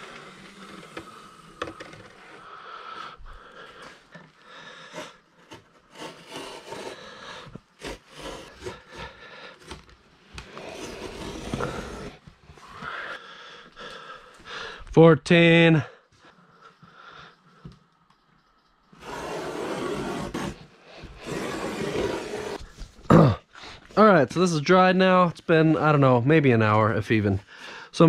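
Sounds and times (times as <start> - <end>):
utility knife scraping through cloth: 4.7 - 9.7, 10.4 - 12.2, 18.9 - 22.8.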